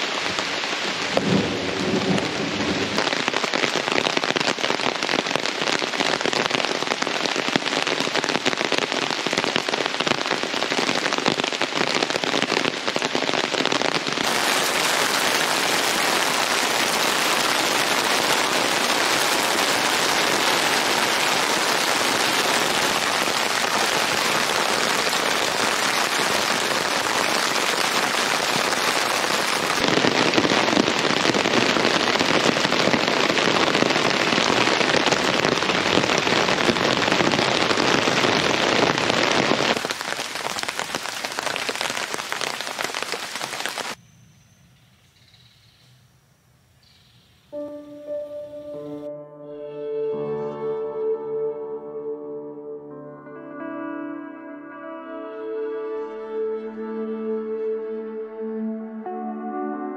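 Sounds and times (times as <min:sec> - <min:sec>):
heavy rain on a tarp: 0:00.0 - 0:44.0
rain on muddy ground: 0:00.0 - 0:44.0.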